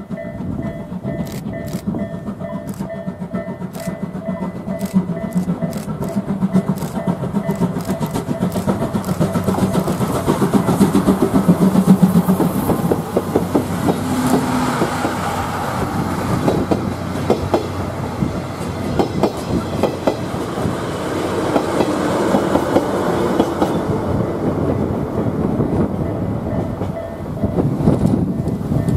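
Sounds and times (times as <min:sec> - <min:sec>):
steam locomotive exhaust beat: 0:00.0 - 0:28.9
train wheels clicking over rail joints: 0:00.0 - 0:28.9.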